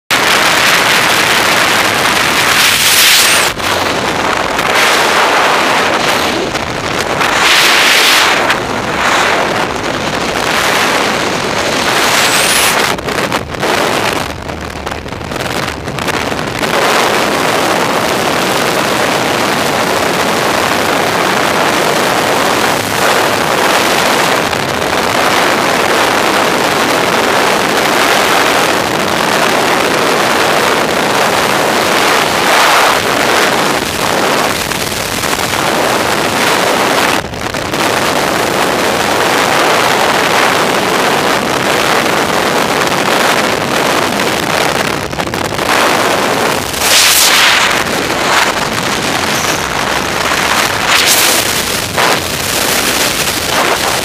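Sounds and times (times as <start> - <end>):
wind rushing on microphone: 0.1 - 54.0.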